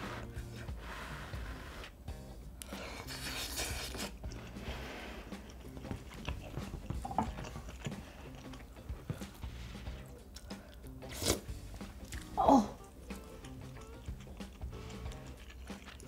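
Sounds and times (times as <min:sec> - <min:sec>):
person biting and chewing: 0:02.7 - 0:04.5, 0:10.4 - 0:12.4, 0:13.1 - 0:16.0.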